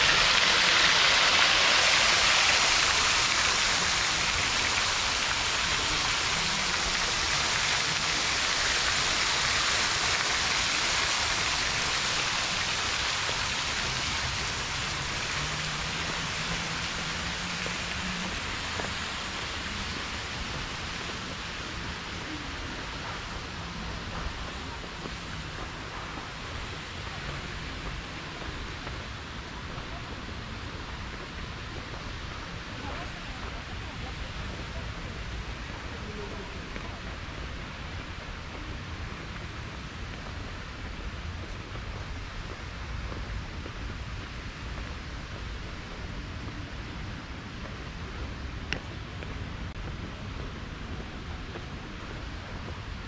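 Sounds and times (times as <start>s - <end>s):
fountain water splashing: 0.0s - 53.0s
faint voices: 20.4s - 53.0s.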